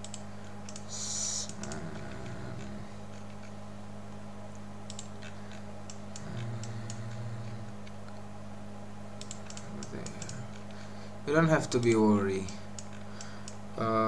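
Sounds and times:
computer mouse clicking: 0.0 - 3.6, 4.9 - 8.2, 9.2 - 10.8, 11.8 - 13.6
steady low hum: 0.0 - 14.0.

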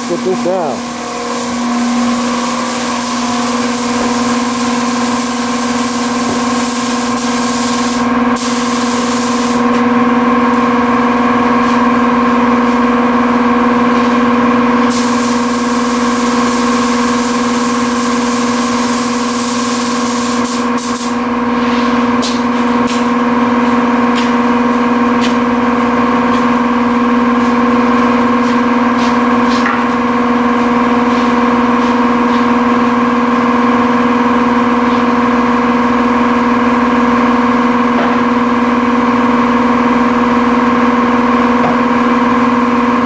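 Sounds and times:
paint spray gun hissing: 0.0 - 9.6, 14.9 - 21.2
steady machine drone: 0.0 - 43.0.

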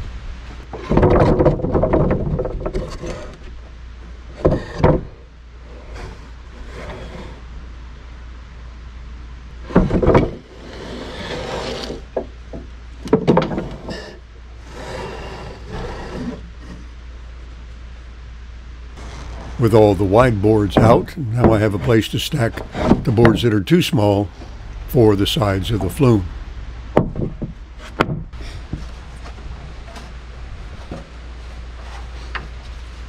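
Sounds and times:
low hum: 0.0 - 33.0
wooden boards knocking and clattering: 0.6 - 3.5, 4.3 - 5.3, 9.6 - 14.2, 20.6 - 23.5, 26.9 - 31.2.

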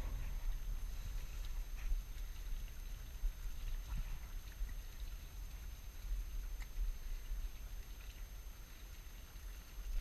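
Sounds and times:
wind buffeting microphone: 0.0 - 4.6
faint ticks: 0.1 - 10.0.

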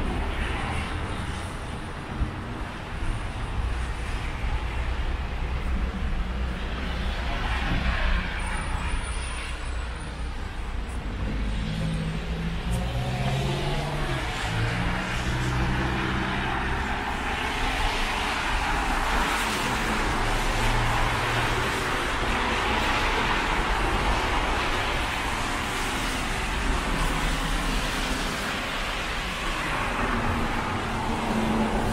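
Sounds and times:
tyres hissing on wet road: 0.0 - 31.9
car engines humming: 9.6 - 31.9.

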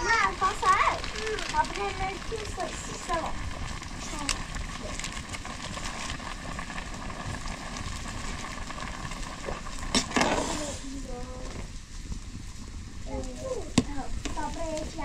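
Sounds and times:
food sizzling: 0.0 - 15.0.

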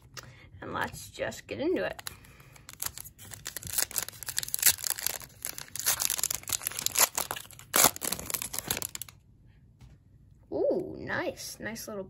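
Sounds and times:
plastic wrapper crinkling and tearing: 1.9 - 9.2.

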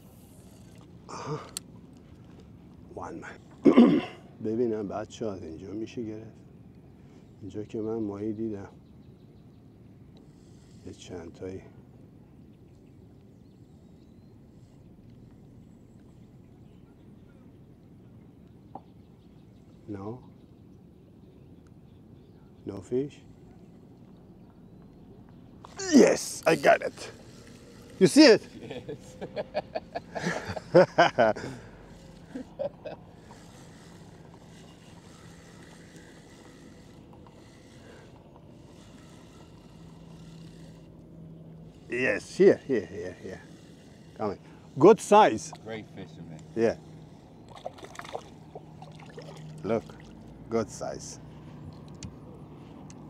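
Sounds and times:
low motor hum: 23.2 - 53.0.

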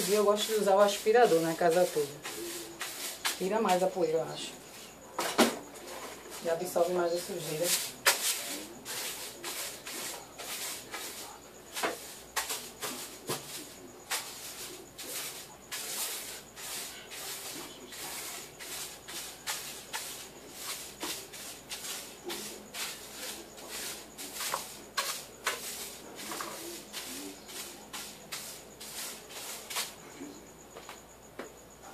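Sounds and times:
broom sweeping a floor: 0.0 - 31.7.

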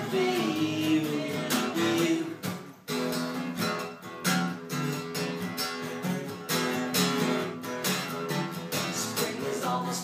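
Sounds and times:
acoustic guitars strumming chords: 0.0 - 10.0.

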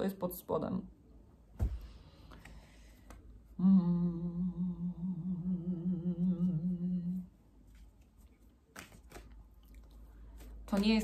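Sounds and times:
soft thump: 1.6 - 1.9
woman humming low note: 3.6 - 7.3.

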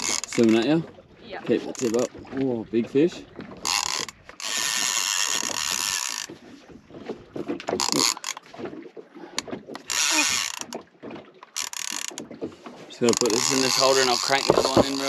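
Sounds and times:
reel clicks and knocks: 0.0 - 1.0, 1.6 - 2.5, 3.4 - 15.0
fishing reel drag buzzing: 3.6 - 6.3, 9.8 - 10.8.

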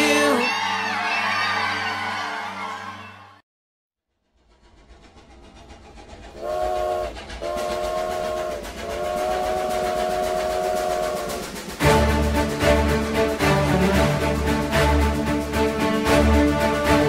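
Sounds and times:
train rumble: 4.1 - 17.0
train wheels clattering: 4.3 - 14.2
train horn blasts: 6.4 - 12.9.

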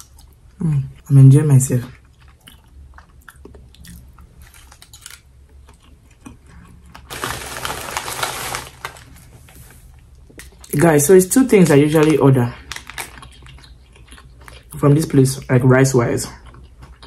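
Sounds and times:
person chewing: 1.8 - 9.2, 12.6 - 15.1, 16.1 - 17.0
rustling scrape: 7.1 - 9.9.

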